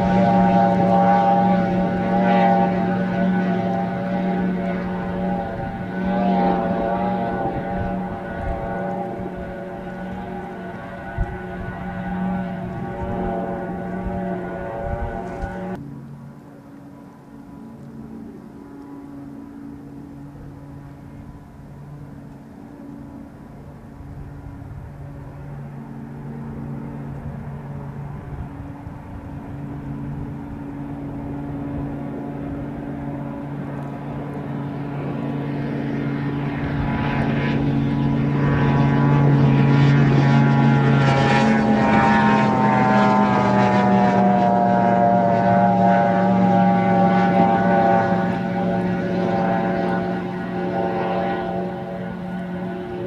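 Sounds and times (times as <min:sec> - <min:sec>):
boat outboard motor passing: 0:00.0 - 0:53.0.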